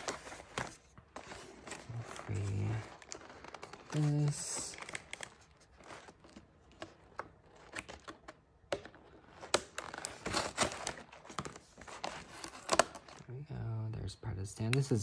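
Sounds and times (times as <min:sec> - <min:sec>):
box insert crinkling and rustling: 0:00.0 - 0:13.4
scissors snipping packaging: 0:03.0 - 0:13.2.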